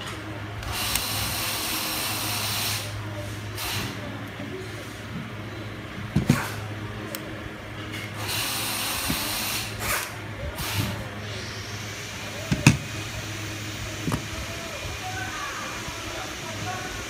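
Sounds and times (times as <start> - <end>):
compressed air hiss: 0.7 - 4.0, 8.2 - 17.0.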